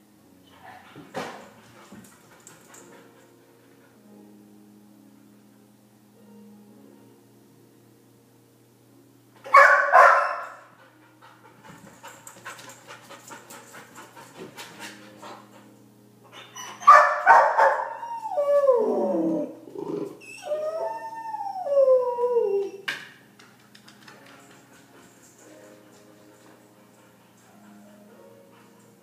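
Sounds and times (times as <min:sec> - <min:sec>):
dog barking: 0:09.5 - 0:10.6, 0:16.9 - 0:18.0
dog howling: 0:16.6 - 0:22.9.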